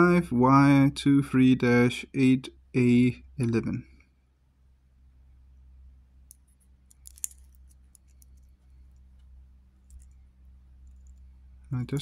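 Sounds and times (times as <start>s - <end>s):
low steady hum: 0.0s - 12.0s
watch bracelet links clinking: 6.3s - 9.1s, 9.8s - 10.2s, 10.8s - 11.3s.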